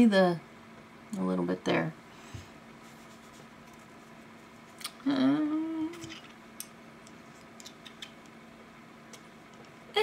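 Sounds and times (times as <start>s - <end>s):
woman humming: 4.8s - 6.2s.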